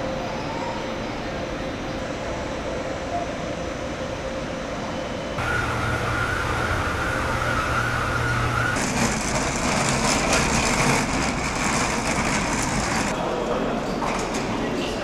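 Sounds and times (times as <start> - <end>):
escalator machinery hum and whine: 0.0 - 15.0
suitcase wheels rolling on pavement: 5.4 - 13.2.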